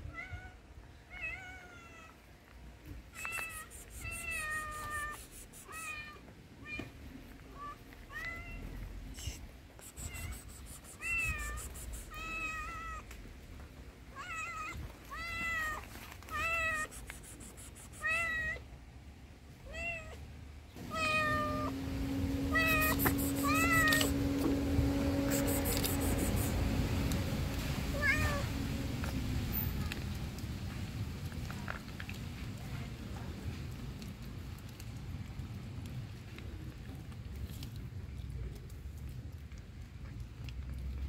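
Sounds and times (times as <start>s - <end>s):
cat meowing: 3.2s - 6.9s, 20.8s - 21.7s, 22.5s - 24.2s, 27.9s - 28.6s
steady low hum: 20.8s - 29.6s.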